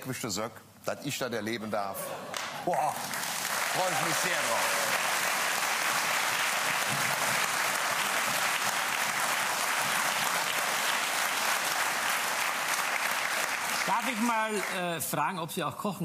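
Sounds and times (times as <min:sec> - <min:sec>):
studio audience applauding: 0:02.3 - 0:15.1.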